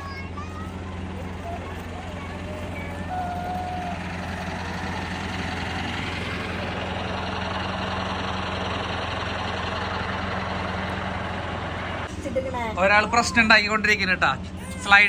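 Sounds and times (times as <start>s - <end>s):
tractor diesel engine idling: 0.0s - 15.0s.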